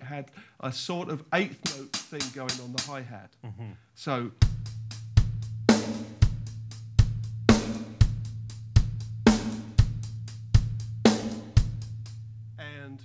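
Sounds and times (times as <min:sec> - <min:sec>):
bass drum: 0:01.6 - 0:03.0, 0:04.4 - 0:12.6
hi-hat strokes: 0:01.6 - 0:03.0, 0:04.4 - 0:12.3
snare drum: 0:01.6 - 0:03.0, 0:07.5 - 0:08.2, 0:09.3 - 0:10.0.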